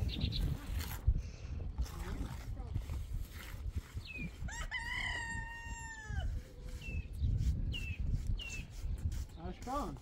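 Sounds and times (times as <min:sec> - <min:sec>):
rooster crowing: 0:04.5 - 0:06.4.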